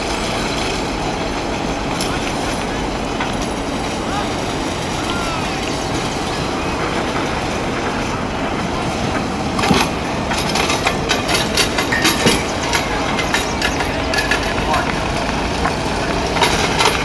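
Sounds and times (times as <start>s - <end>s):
machine engine running: 0.0s - 17.0s
metallic clanks and rattles: 1.9s - 3.9s, 9.2s - 17.0s.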